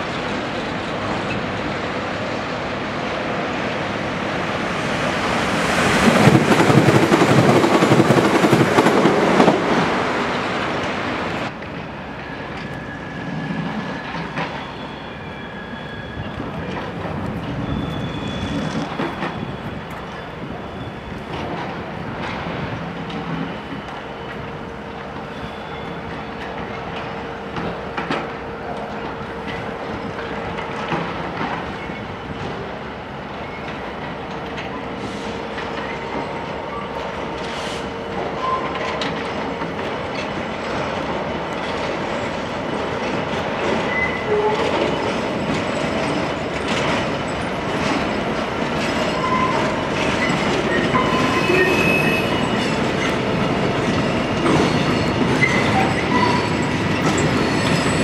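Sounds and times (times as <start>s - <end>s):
high wheel squeals: 12.2s - 21.7s, 23.2s - 27.4s, 43.8s - 46.5s, 47.2s - 58.0s
wagon wheels clacking over rail joints: 38.6s - 58.0s.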